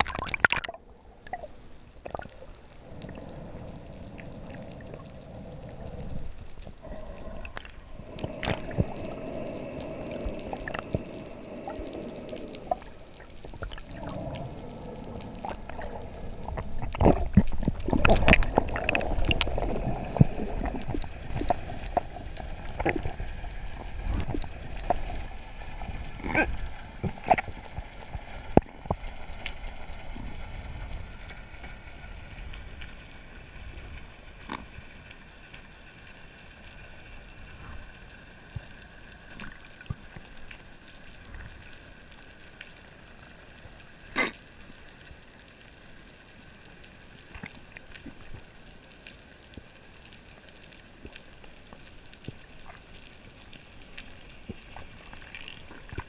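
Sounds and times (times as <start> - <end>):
sharp underwater clicks and knocks: 0.0 - 2.4, 16.5 - 22.1
underwater water rush and gurgle: 0.0 - 56.0.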